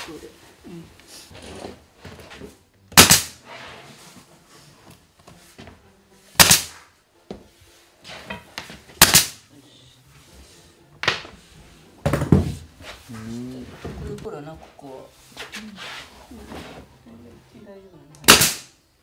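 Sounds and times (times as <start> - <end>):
nails hammered into wood: 2.9 - 3.4, 6.4 - 6.7, 9.0 - 9.4, 18.2 - 18.7.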